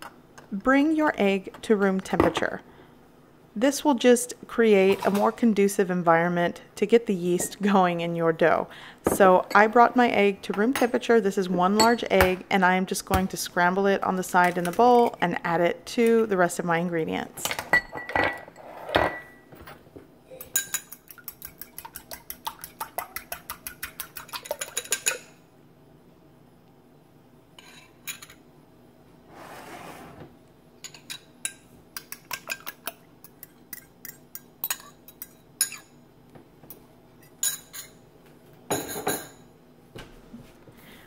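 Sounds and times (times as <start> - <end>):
utensil beating egg in ceramic bowl: 20.6 - 25.3.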